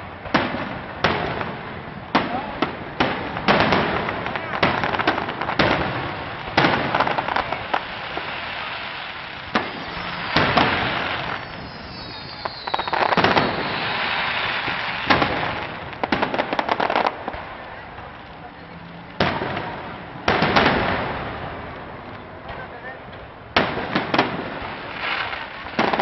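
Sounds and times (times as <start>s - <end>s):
fireworks bursting with bangs: 0.0s - 26.0s
fireworks crackling: 0.0s - 26.0s
falling firework whistle: 8.0s - 15.6s.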